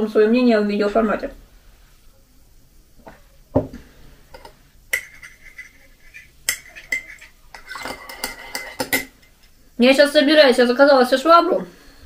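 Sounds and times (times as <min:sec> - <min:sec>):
teaspoon clinking in mug: 0:04.4 - 0:09.1.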